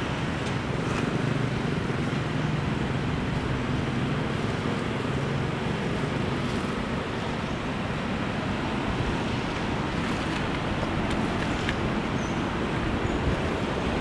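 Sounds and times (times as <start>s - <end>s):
constant rumbling noise: 0.0s - 14.0s.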